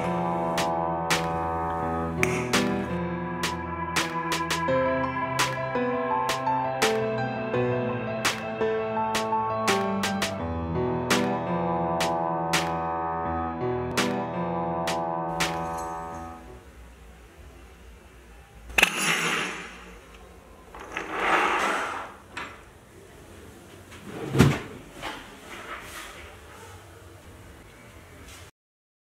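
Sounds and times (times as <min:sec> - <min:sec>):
background music with sustained chords: 0:00.0 - 0:17.1
metal bracelet links clinking: 0:15.5 - 0:16.4
wooden drawer sliding: 0:20.8 - 0:22.2.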